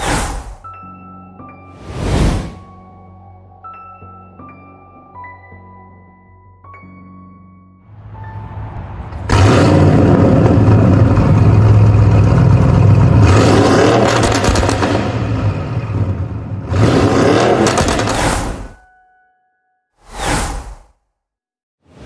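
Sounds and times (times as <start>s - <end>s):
car engine revving: 9.2s - 18.6s.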